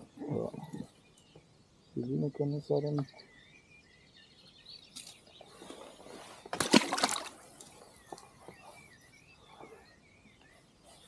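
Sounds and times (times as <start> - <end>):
birds chirping: 0.0 - 11.0
water splashing: 6.5 - 7.5.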